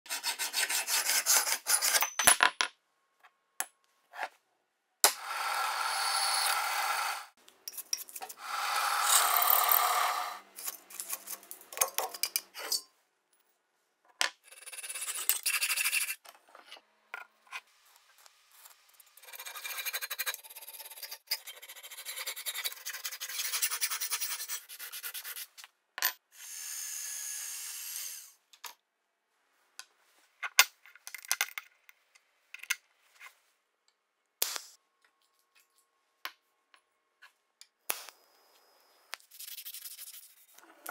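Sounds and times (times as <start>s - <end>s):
drill press cutting metal: 8.4s - 10.4s
hacksaw cutting metal: 8.4s - 10.4s.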